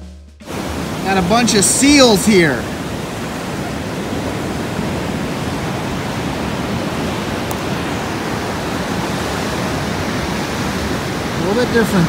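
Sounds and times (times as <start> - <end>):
ocean surf washing over rocks: 0.4 - 12.0.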